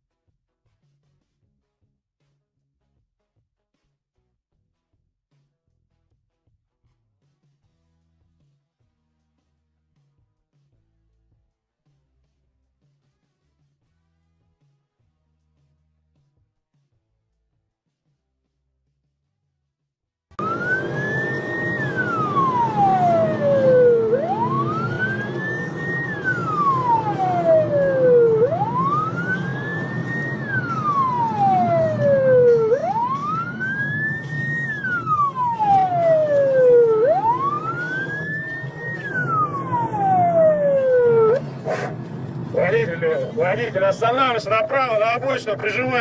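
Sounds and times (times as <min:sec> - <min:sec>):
police siren wailing: 0:20.4 - 0:46.0
traffic rumble: 0:20.4 - 0:46.0.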